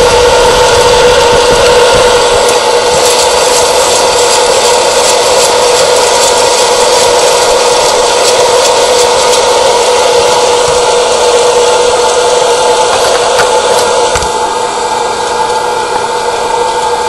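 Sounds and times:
popcorn popper fan blowing: 0.0s - 17.0s
coffee beans rattling: 2.2s - 14.3s.

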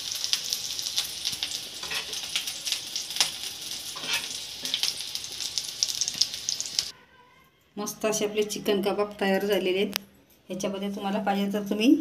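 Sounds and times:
meat sizzling in oil: 0.0s - 6.9s.

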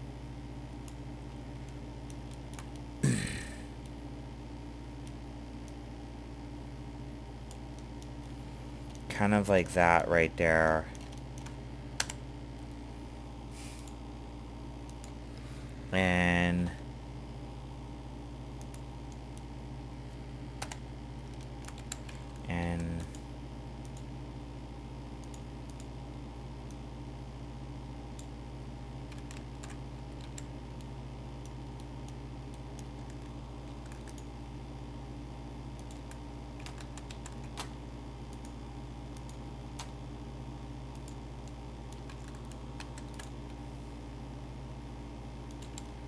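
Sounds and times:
low electrical hum: 0.0s - 46.0s
short vocal sound: 3.0s - 3.7s
keyboard and mouse clicks: 10.9s - 12.8s, 20.6s - 23.2s, 29.1s - 30.5s, 31.4s - 34.3s, 35.8s - 40.0s, 40.9s - 43.6s, 45.5s - 46.0s.

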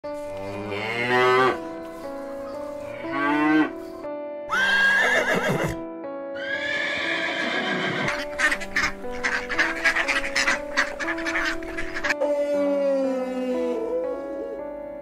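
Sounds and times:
background music: 0.0s - 15.0s
horse whinnying: 4.5s - 5.8s, 6.4s - 8.9s.

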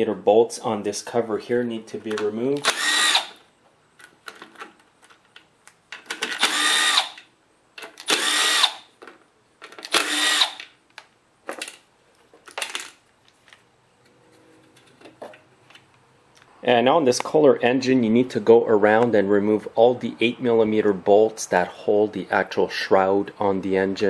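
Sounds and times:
power driver motor whining: 2.6s - 3.4s, 6.4s - 7.2s, 8.1s - 8.8s, 9.9s - 10.6s.

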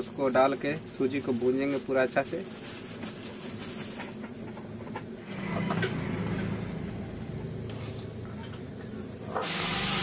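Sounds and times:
water hissing in hot pan: 0.0s - 4.0s, 9.2s - 10.0s
low hum: 5.2s - 9.2s.

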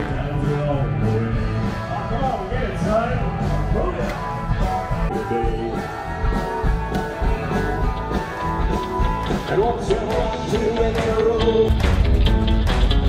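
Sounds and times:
rock and roll band playing: 0.0s - 13.0s
person singing: 5.1s - 6.6s, 9.1s - 12.0s.

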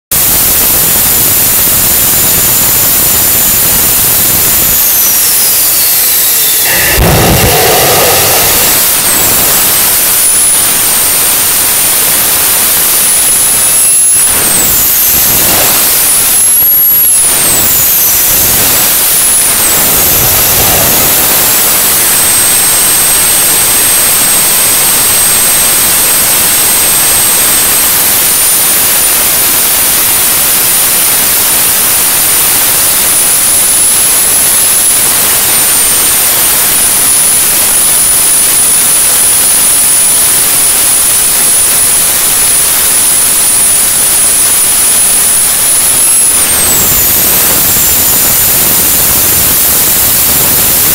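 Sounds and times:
high turbine whine: 0.1s - 50.9s
jet engine rushing roar: 0.2s - 50.9s.

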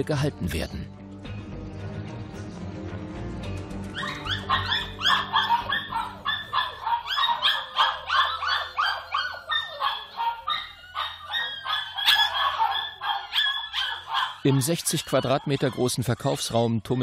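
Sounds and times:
dogs barking and yapping: 3.8s - 17.0s.

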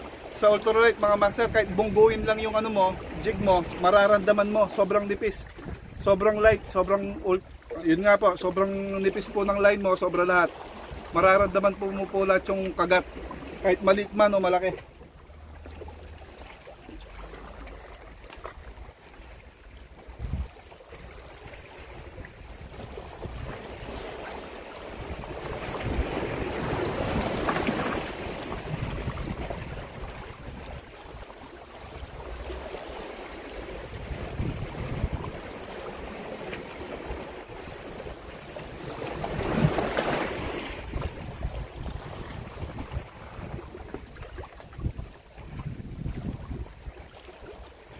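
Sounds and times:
waves washing against rocky shore: 0.0s - 14.9s, 20.2s - 47.9s
wind rumbling on microphone: 1.0s - 7.7s, 20.0s - 32.8s, 33.7s - 36.2s, 38.6s - 47.9s.

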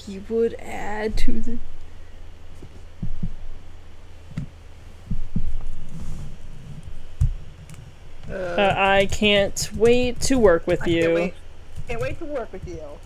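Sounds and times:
low electrical hum: 0.0s - 13.0s
dull low thumps: 2.6s - 13.0s.

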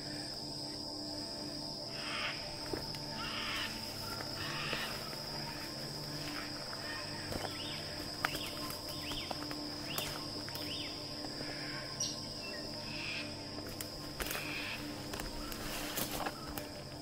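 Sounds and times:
high-pitched insect drone: 0.0s - 17.0s
footsteps rustling through grass: 2.5s - 11.7s, 13.4s - 17.0s.

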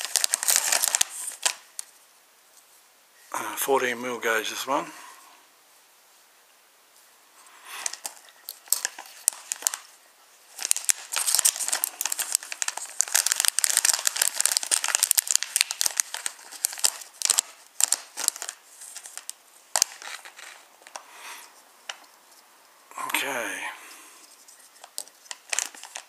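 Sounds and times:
plastic bag crinkling: 0.0s - 2.0s, 7.8s - 21.1s, 24.2s - 26.0s.

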